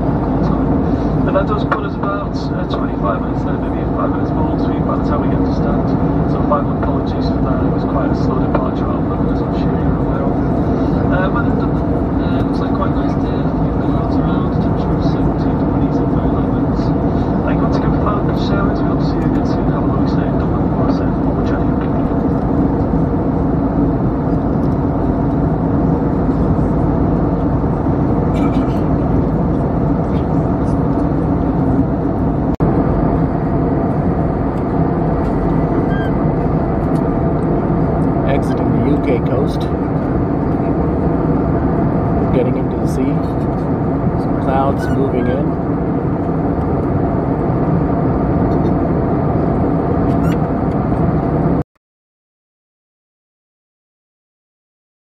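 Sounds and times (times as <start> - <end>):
jet airliner cabin noise: 0.0 - 51.6.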